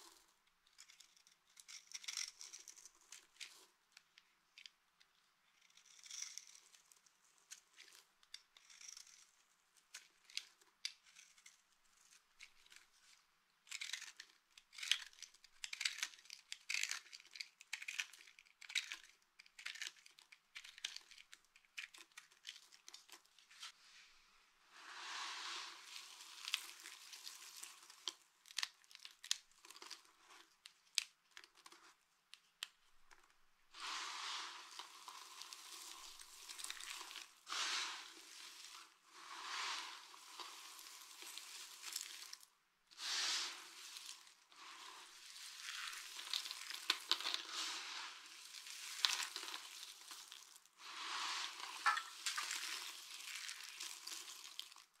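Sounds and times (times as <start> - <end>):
soap chunks crushed in hands: 13.6 - 23.3, 26.1 - 32.0, 43.8 - 47.6, 48.3 - 50.7, 51.6 - 55.0.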